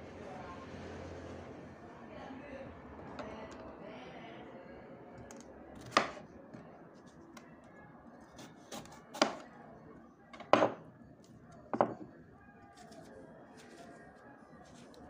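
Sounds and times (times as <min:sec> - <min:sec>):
knife chopping on wooden board: 0:05.8 - 0:06.2, 0:08.4 - 0:09.4.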